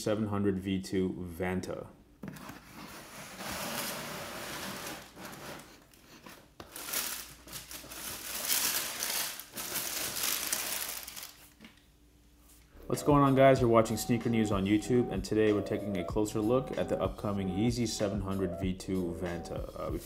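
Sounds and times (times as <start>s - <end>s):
tissue paper rustling and crinkling: 3.0s - 11.6s.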